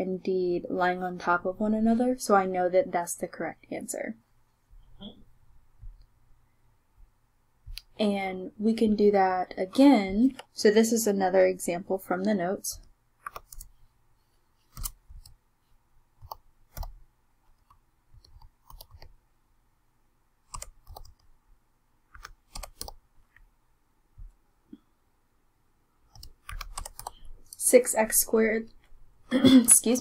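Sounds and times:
computer keyboard typing: 13.2 - 13.8, 14.7 - 15.4, 16.2 - 19.1, 20.5 - 21.3, 22.1 - 23.0, 26.1 - 27.6.

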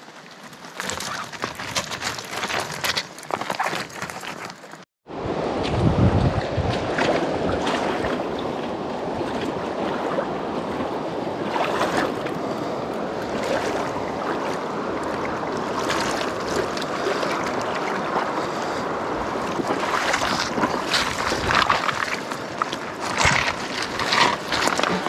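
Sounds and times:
river rushing over stones: 0.0 - 25.0
stones clacking: 0.5 - 4.8
wading splashes: 5.4 - 25.0.

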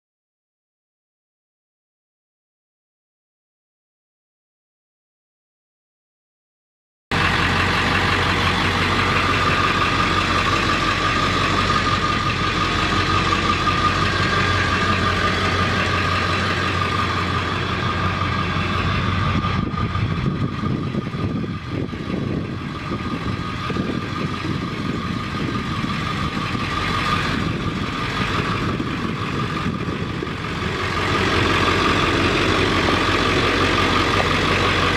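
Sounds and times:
diesel engine idling: 7.1 - 34.9.

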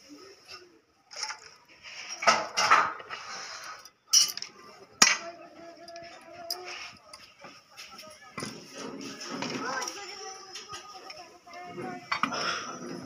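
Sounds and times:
shells clattering on metal: 4.1 - 6.7.

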